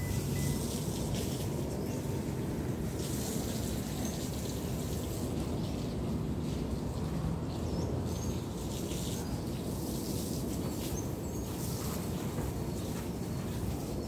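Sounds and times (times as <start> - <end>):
short high chirp: 0.0 - 0.7.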